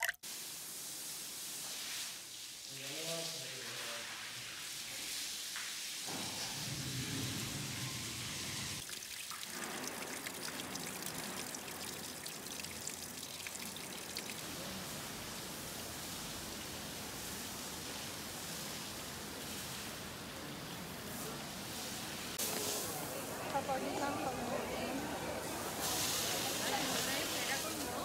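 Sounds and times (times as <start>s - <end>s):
patter of water drops: 8.8s - 14.5s
water trickling into a drain: 8.8s - 21.5s.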